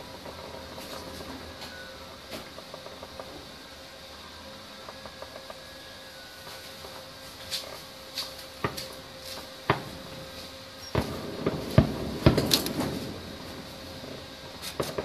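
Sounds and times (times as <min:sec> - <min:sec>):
distant fireworks bangs: 0:08.2 - 0:15.0.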